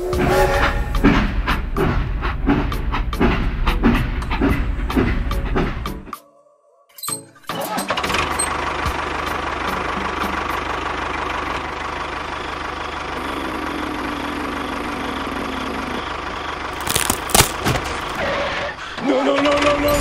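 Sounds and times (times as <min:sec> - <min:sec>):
tractor engine idling: 0:08.2 - 0:19.7.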